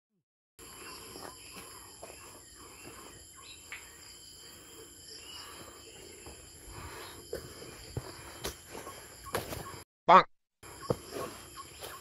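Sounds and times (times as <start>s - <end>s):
insects ringing: 0.6s - 9.8s.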